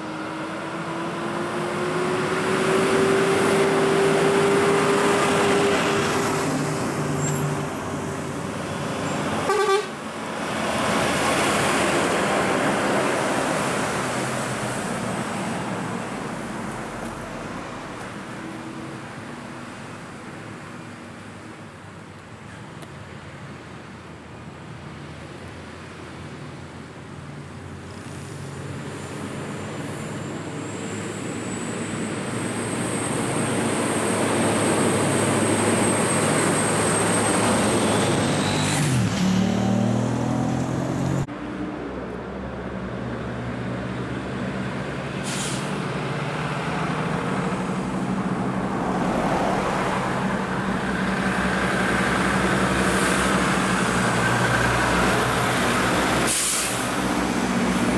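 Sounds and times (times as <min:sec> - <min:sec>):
diesel truck engines: 0:00.0 - 0:57.9
air hisses: 0:56.3 - 0:57.0.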